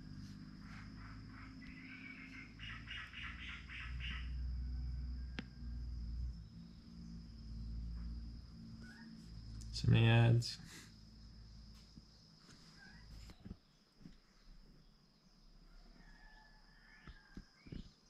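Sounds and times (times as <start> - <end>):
low hum: 0.0 - 2.8, 3.6 - 12.3
insect chirping: 0.0 - 18.0.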